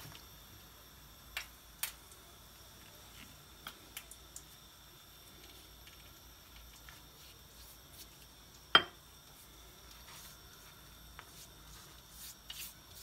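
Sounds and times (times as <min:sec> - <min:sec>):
pastry sheets rustling: 0:09.3 - 0:13.0.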